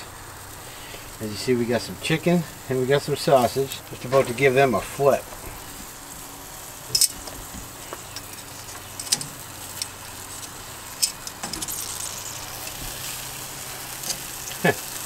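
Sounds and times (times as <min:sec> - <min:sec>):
meat sizzling on a grill: 0:00.0 - 0:15.0
metal tongs clicking on grate: 0:08.1 - 0:12.0, 0:14.0 - 0:14.4.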